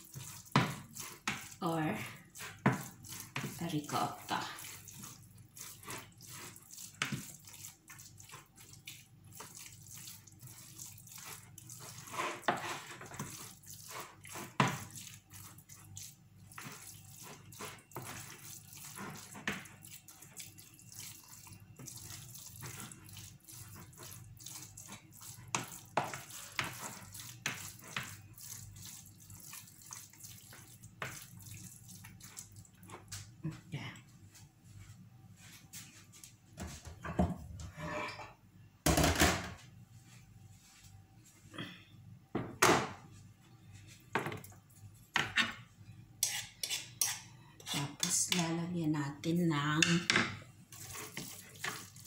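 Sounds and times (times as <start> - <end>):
spoon stirring wet filling: 0.0 - 34.1, 43.8 - 48.7, 49.6 - 52.0.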